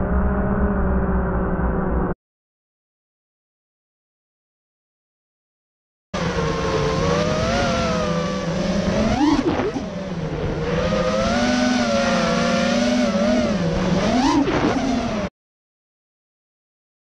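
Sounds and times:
drone motors whining: 6.2s - 15.3s.

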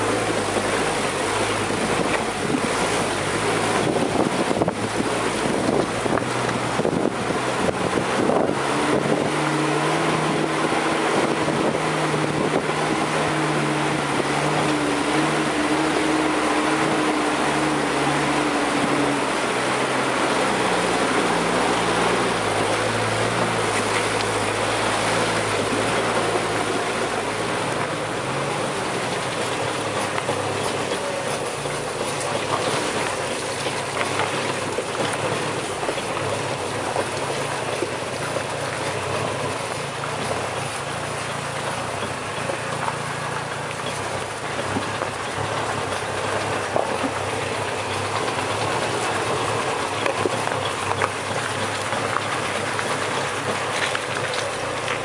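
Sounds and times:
rattles and knocks of vehicle body: 0.0s - 9.5s, 21.3s - 55.0s
vehicle engine drone: 0.0s - 55.0s.

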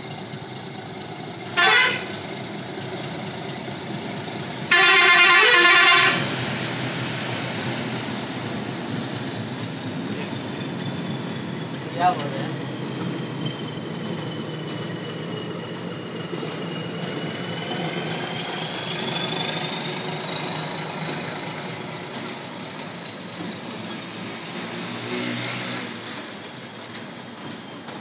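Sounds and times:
train engine rumbling: 0.0s - 24.7s, 26.2s - 28.0s
high squeal rising in pitch: 4.8s - 15.8s, 16.6s - 24.5s.

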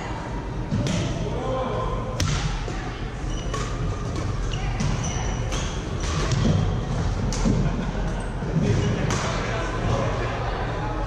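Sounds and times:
court shoes squeaking: 3.1s - 9.9s.

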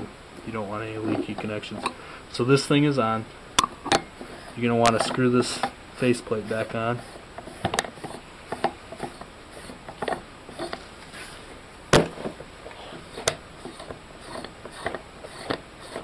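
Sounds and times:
threads clicking and scraping: 3.7s - 11.3s, 12.7s - 16.0s.

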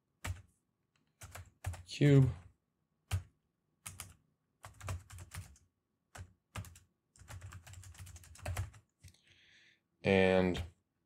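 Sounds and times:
computer keyboard typing: 0.2s - 0.5s, 1.1s - 1.9s, 3.0s - 9.2s.

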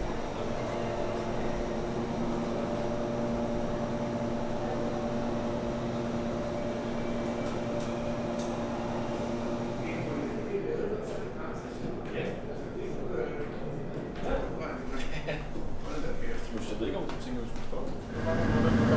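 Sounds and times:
diesel engine droning: 18.1s - 18.9s.

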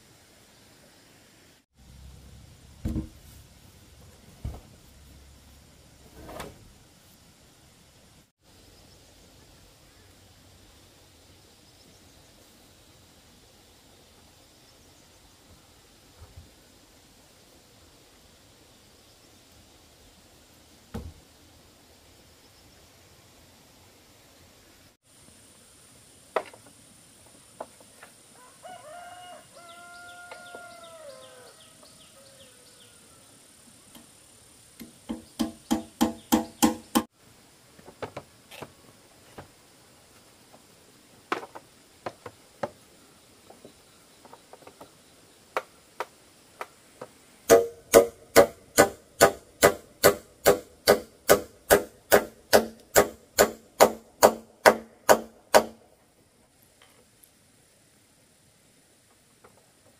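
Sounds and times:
hand tool knocking on wooden log: 34.8s - 37.1s.

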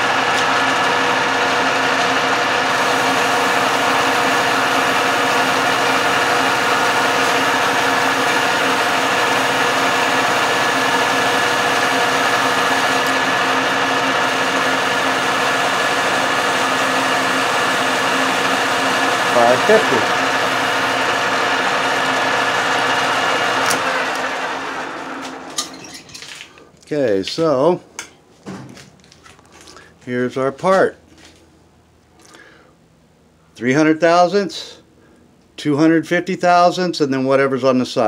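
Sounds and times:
metal lathe running: 0.0s - 25.9s.

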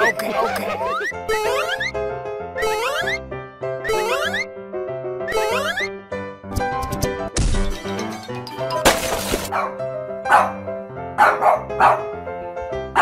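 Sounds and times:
cheerful background music: 0.0s - 13.0s
cartoon dog barking: 10.3s - 10.6s, 11.2s - 12.1s.

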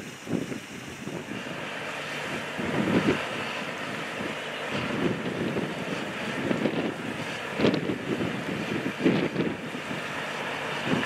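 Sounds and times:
highway traffic hiss: 0.0s - 11.0s
wind buffeting microphone: 0.0s - 11.0s.

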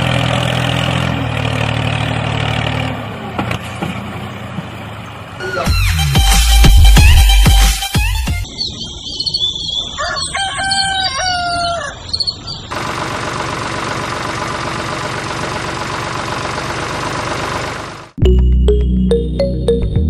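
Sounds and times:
music: 5.6s - 8.4s, 18.2s - 20.0s
chickens and rooster calling: 8.4s - 12.7s.

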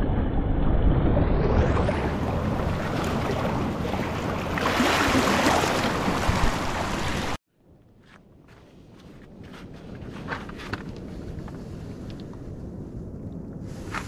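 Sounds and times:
wind rumble on microphone: 0.0s - 14.0s
sea water surging over rocks: 1.7s - 7.4s.

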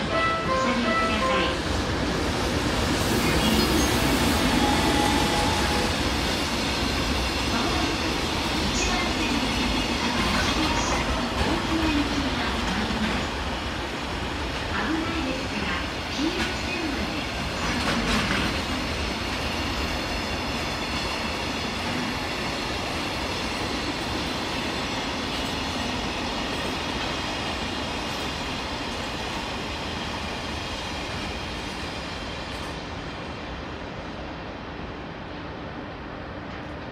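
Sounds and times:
train wheels rumbling on rail: 0.0s - 36.9s.

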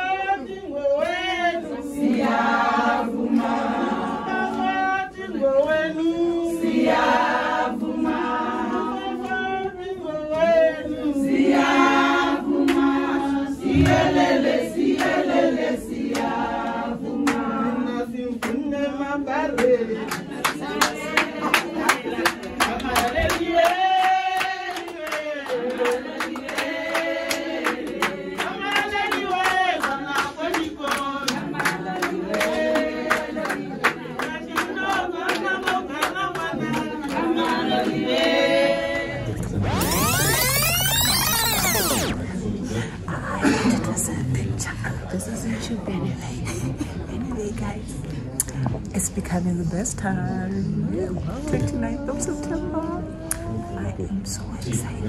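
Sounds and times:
women singing together: 0.0s - 42.2s, 50.5s - 54.5s
rhythmic hand clapping: 1.0s - 5.0s, 6.6s - 9.6s, 11.4s - 38.8s.

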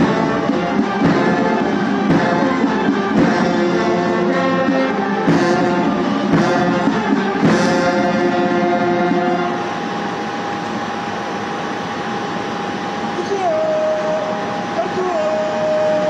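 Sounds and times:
drum beats: 0.0s - 9.8s
ceremonial brass band music: 0.0s - 10.0s.

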